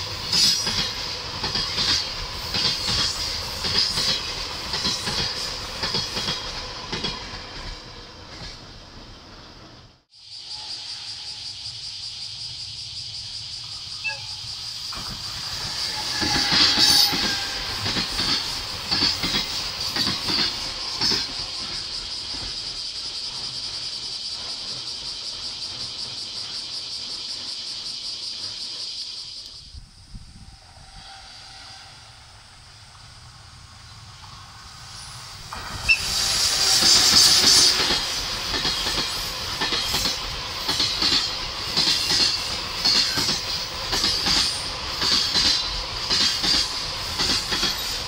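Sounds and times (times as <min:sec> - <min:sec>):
wheels clacking over rail joints: 0:00.0 - 0:09.0, 0:14.9 - 0:22.8, 0:35.4 - 0:48.0
rolling train wheels hissing: 0:00.0 - 0:48.0.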